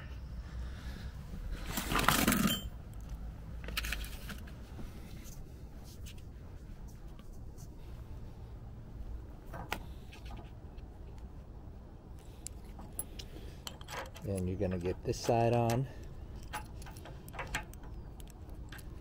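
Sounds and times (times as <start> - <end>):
light metallic clicks: 12.2 - 19.0.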